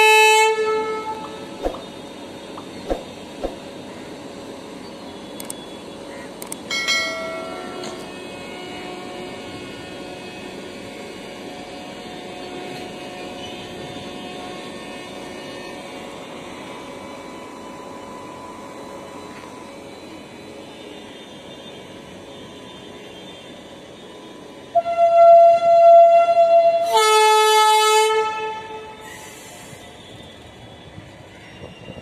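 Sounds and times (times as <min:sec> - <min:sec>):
train horn: 0:00.0 - 0:01.6, 0:07.4 - 0:10.7, 0:24.0 - 0:29.3
train wheels on rails: 0:00.6 - 0:24.9, 0:25.5 - 0:32.0.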